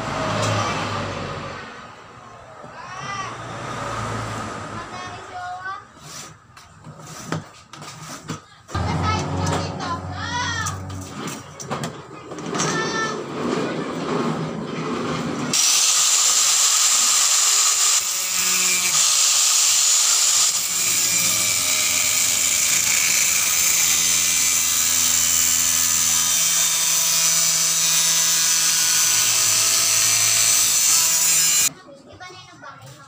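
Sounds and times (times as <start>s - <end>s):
angle grinder cutting metal sheet: 8.8s - 11.5s, 15.6s - 31.7s.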